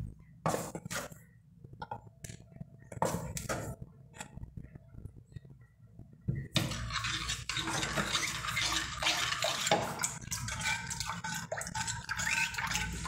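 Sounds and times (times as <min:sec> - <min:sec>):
spoon stirring liquid in pan: 0:06.5 - 0:13.0
spoon scraping metal pan: 0:06.6 - 0:13.0.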